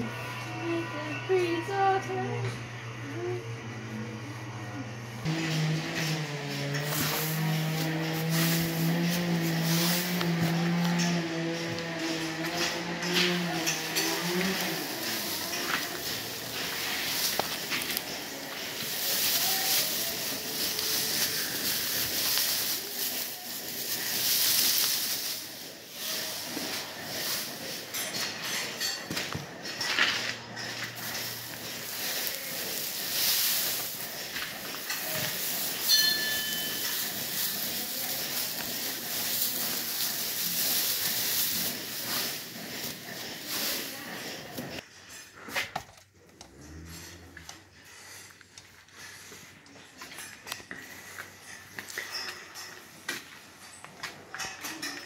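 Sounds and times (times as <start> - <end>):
straw rustling: 5.3 - 29.0, 29.6 - 44.8.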